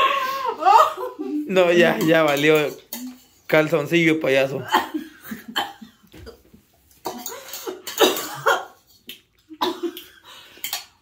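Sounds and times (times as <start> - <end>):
person coughing: 4.6 - 6.4, 7.0 - 8.8, 9.6 - 10.0.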